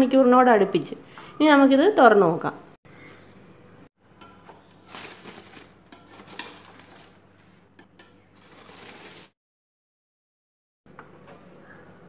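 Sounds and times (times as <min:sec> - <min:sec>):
aluminium foil crinkling: 0:04.5 - 0:07.2, 0:08.4 - 0:09.4.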